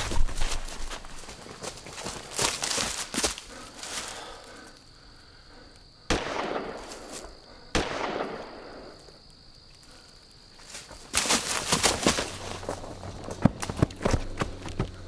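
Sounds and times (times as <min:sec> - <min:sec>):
high insect drone: 0:00.0 - 0:15.0
gunshots: 0:06.1 - 0:07.1, 0:07.7 - 0:08.9.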